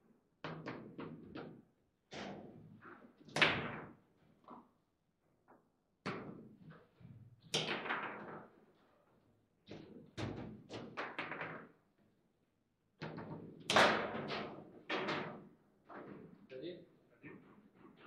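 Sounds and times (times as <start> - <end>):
foosball ball and rods clacking: 0.5 - 1.6, 7.5 - 8.6, 9.7 - 11.8, 13.0 - 16.2.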